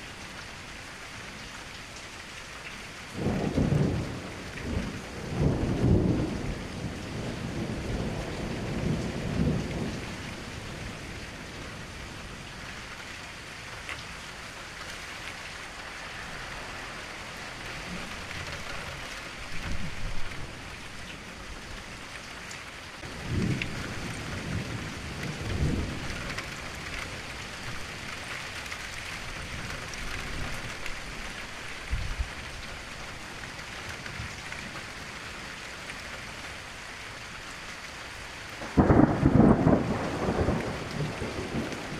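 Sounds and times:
steady rain falling: 0.0 - 41.9
low rolls of thunder: 3.1 - 12.4, 23.0 - 28.3, 38.6 - 41.9.

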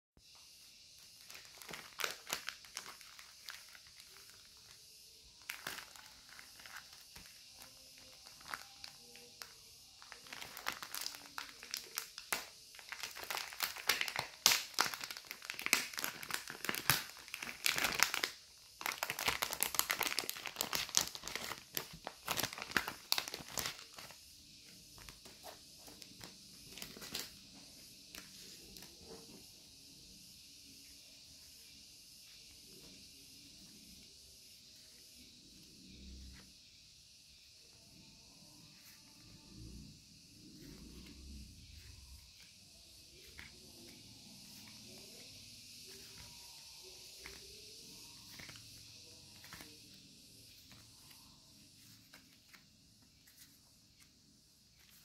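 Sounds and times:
paper stickers rustling: 1.1 - 4.8, 18.9 - 27.4, 49.3 - 51.2, 51.8 - 55.0
plastic bags crinkling: 1.1 - 4.8, 5.4 - 24.2, 25.4 - 27.3.

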